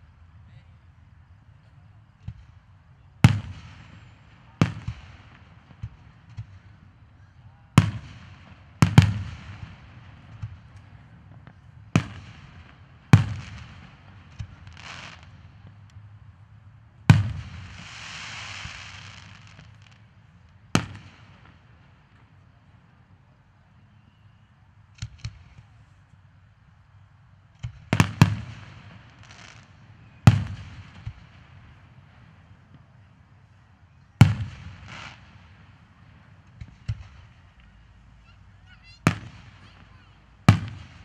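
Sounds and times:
fireworks hiss: 14.4s - 15.4s, 17.4s - 20.0s
fireworks booming: 38.8s - 41.0s.

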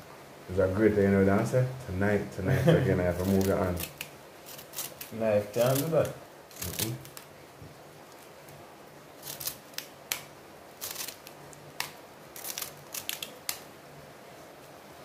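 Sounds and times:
knife cutting leaves: 3.1s - 7.3s, 9.2s - 13.7s.

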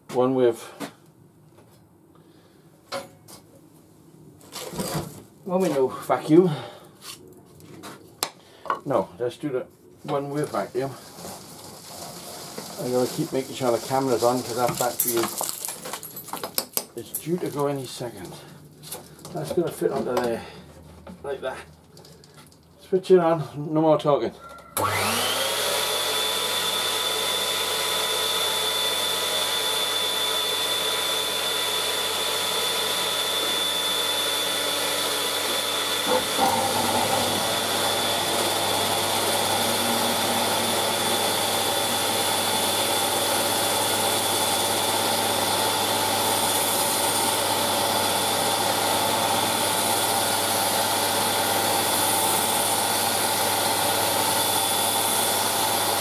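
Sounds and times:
vacuum cleaner whine: 10.1s - 15.6s, 24.8s - 56.0s
wood sanding: 10.1s - 15.6s, 31.9s - 56.0s
mill-drill spinning: 10.5s - 15.7s, 24.8s - 56.0s.

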